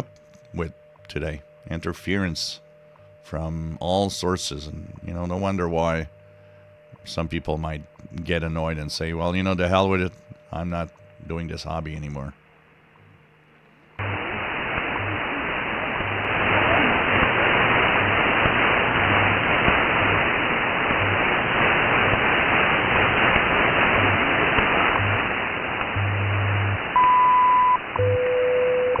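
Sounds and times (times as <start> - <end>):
high radio tone: 0.0 - 12.4, 14.0 - 29.0
radio hiss: 0.0 - 12.4, 13.7 - 28.0
steady radio tone: 0.0 - 12.4, 14.0 - 29.0
low time-code pulses: 14.0 - 29.0.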